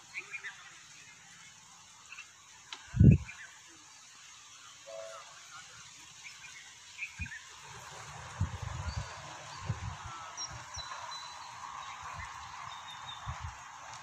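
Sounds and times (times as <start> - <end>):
steady hiss: 0.0 - 14.0
bird chirps: 8.8 - 13.6.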